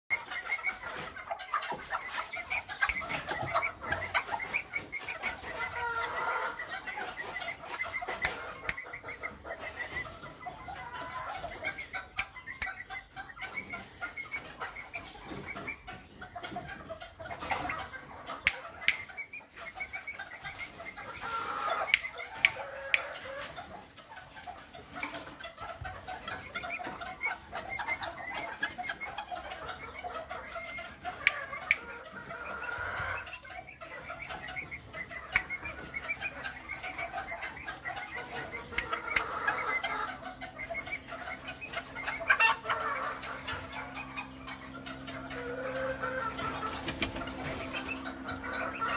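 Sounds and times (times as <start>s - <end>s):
chickens clucking: 0.1s - 48.9s
sharp clicks: 21.9s - 23.1s.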